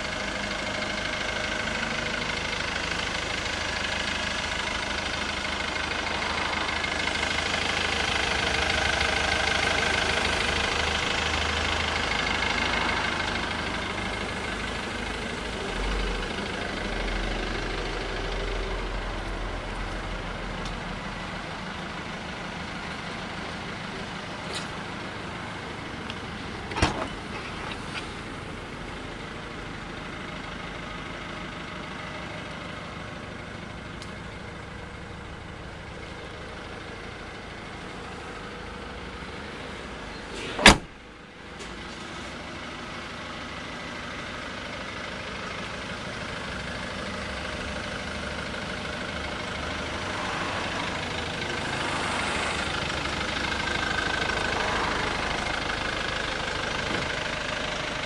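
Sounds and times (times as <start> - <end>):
car engine idling: 0.0 - 58.0
car boot lid thump: 40.6 - 40.9.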